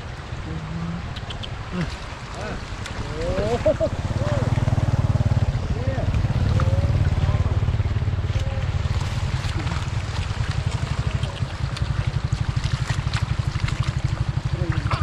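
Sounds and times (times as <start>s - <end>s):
floodwater rushing over road: 0.0s - 15.0s
low rumble: 2.8s - 15.0s
fish splashing in net: 8.8s - 15.0s.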